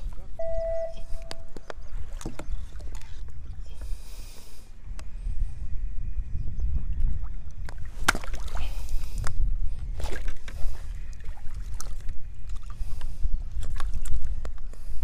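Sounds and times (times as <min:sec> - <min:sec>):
wind buffeting microphone: 0:00.0 - 0:15.0
water splashing against kayak hull: 0:07.6 - 0:09.2, 0:10.0 - 0:14.9.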